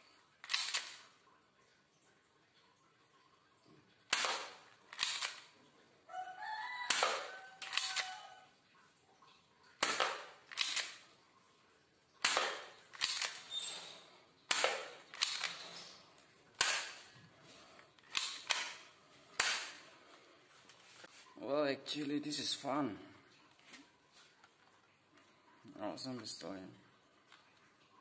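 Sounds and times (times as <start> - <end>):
airsoft pistol shots echoing: 4.1 - 5.4, 12.2 - 13.4, 14.5 - 15.6, 16.6 - 17.0, 19.4 - 19.8.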